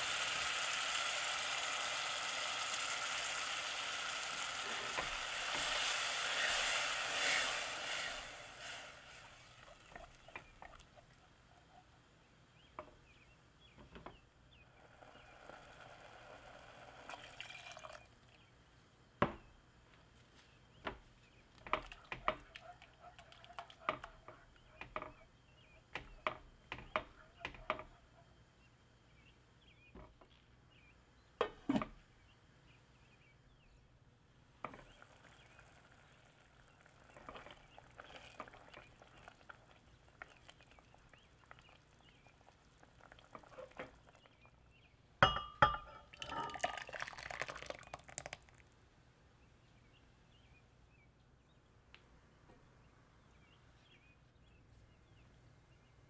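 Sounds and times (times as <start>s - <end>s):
clinks: 45.2s - 46.8s.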